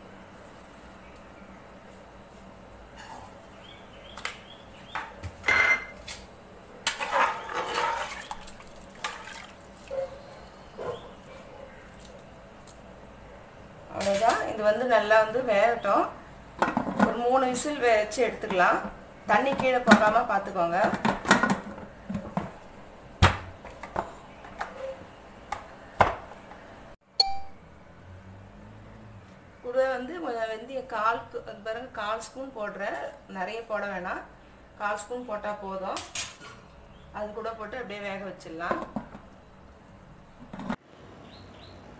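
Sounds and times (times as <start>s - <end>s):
metal kitchenware clinking: 5.4s - 6.1s, 6.9s - 8.4s
spoon scraping a pot: 6.9s - 8.5s
porridge sloshing in a pot: 6.9s - 10.0s.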